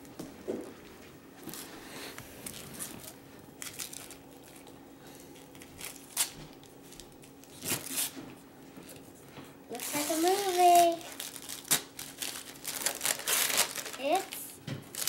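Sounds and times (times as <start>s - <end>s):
wrapping paper crinkling and tearing: 2.4s - 8.2s, 9.7s - 15.0s.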